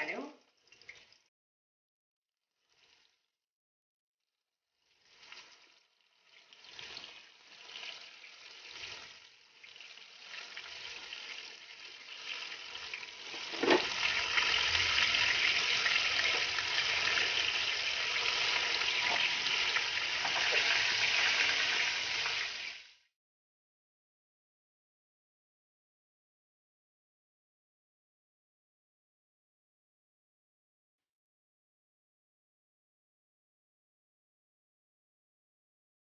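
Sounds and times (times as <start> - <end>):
meat sizzling in hot oil: 4.8 - 23.1
knock: 13.5 - 13.9.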